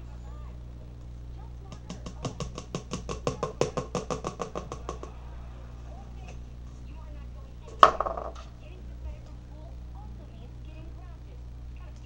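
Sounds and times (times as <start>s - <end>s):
stick tapping in paint cup: 1.7s - 5.2s, 7.7s - 8.5s.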